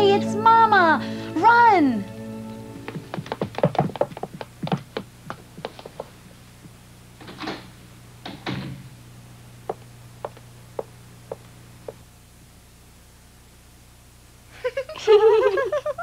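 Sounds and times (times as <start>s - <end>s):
footsteps on wooden floor: 2.7s - 6.8s, 9.7s - 12.0s
footsteps on wooden stairs: 2.8s - 6.8s, 9.7s - 12.0s
door opening and closing: 7.2s - 8.9s.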